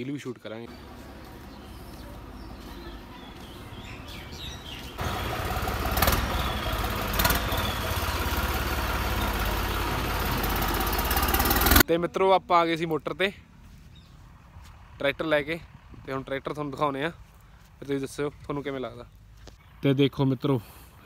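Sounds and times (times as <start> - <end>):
tractor diesel engine: 0.7 - 11.9, 13.4 - 19.4.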